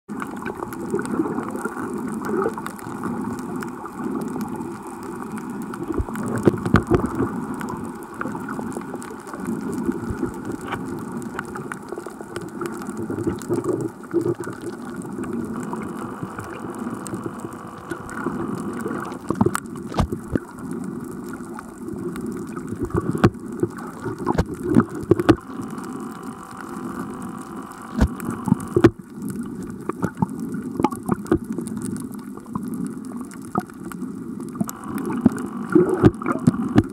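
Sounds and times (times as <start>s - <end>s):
sharp underwater clicks and crackles: 0.1s - 36.9s
underwater wash of moving water: 0.1s - 36.9s.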